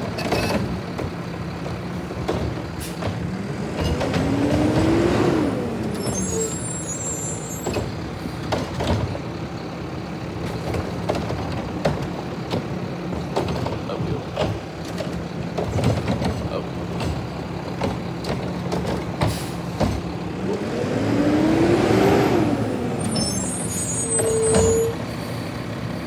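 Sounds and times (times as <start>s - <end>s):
metal clanks and knocks: 0.0s - 5.0s, 7.6s - 9.3s, 10.4s - 20.2s
garbage truck engine running: 0.0s - 26.0s.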